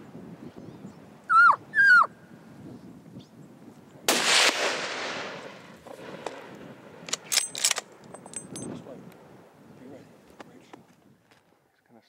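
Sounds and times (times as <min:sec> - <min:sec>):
rifle shot echoing: 0:04.1 - 0:08.0.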